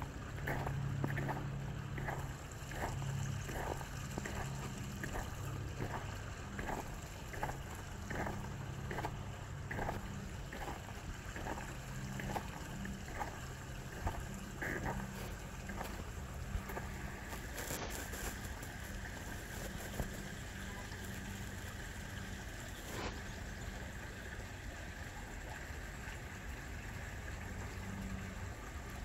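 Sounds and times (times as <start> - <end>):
low steady rumble: 0.0 - 29.0
footsteps on snow and ice: 0.4 - 21.3.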